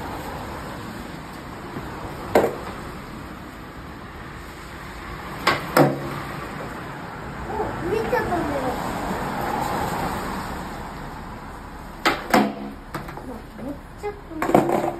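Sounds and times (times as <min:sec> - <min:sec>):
skateboard clacking on concrete: 0:12.0 - 0:13.3, 0:14.4 - 0:14.9.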